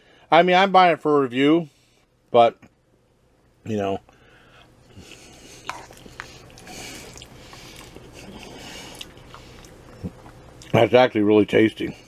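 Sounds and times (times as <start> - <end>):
person chewing food: 4.5 - 10.8.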